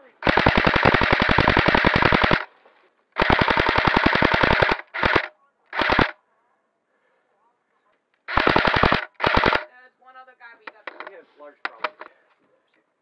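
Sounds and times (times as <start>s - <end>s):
airsoft rifle full-auto bursts: 0.1s - 2.5s, 3.2s - 6.2s, 8.3s - 9.7s.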